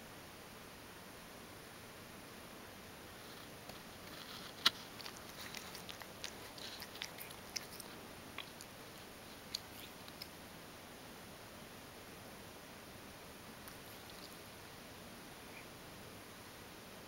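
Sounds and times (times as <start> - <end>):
cat licking fur: 3.2 - 10.4, 13.6 - 14.6.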